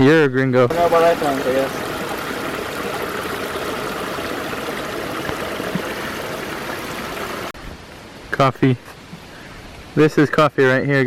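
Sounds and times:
stream running over rocks: 0.7s - 7.6s.

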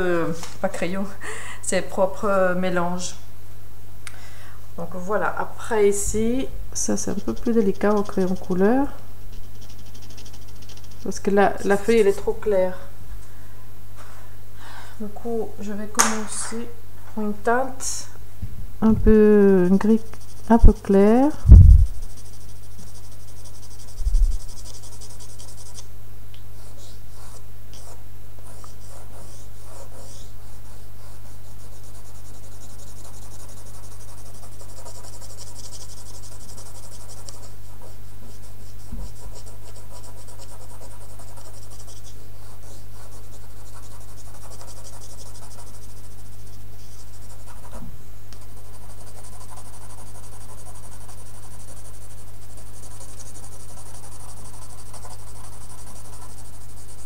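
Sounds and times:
steady low hum: 0.0s - 57.0s
pencil scratching on paper: 6.9s - 12.2s, 19.8s - 25.8s, 26.6s - 47.8s, 48.4s - 57.0s.

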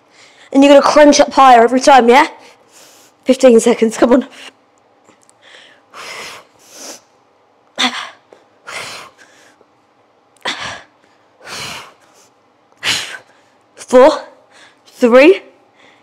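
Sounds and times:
woman breathing forcefully: 5.4s - 7.1s, 7.8s - 9.7s, 10.4s - 13.6s, 14.4s - 14.9s, 15.6s - 16.0s.

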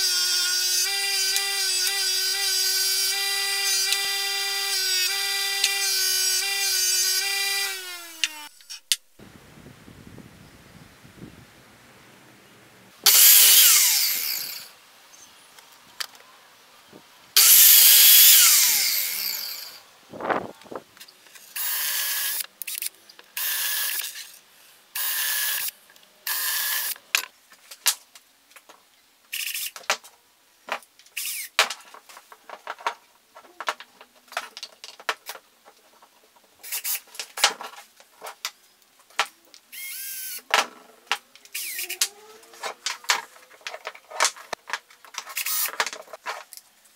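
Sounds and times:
power drill running: 0.0s - 8.6s, 13.1s - 14.7s, 17.4s - 19.8s
mitre saw cutting wood: 0.0s - 8.8s, 13.1s - 14.7s, 17.4s - 19.8s.

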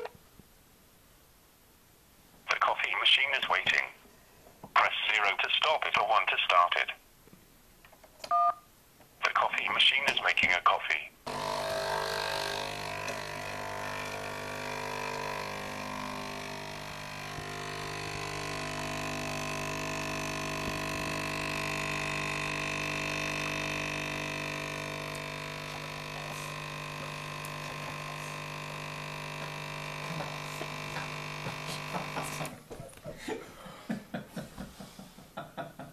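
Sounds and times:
coffee machine pump buzzing: 11.3s - 32.6s.

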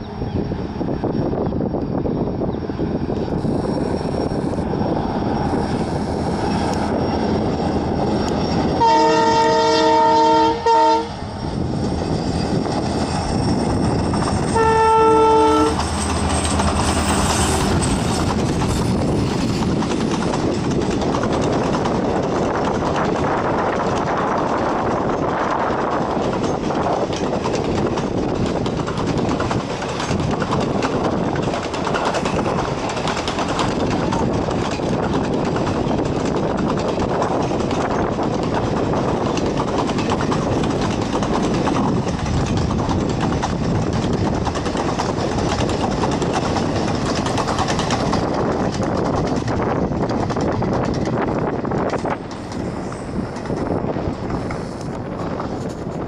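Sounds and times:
train wheels rumbling on rail: 0.0s - 56.0s
clicks of wheels on rail joints: 14.0s - 56.0s.

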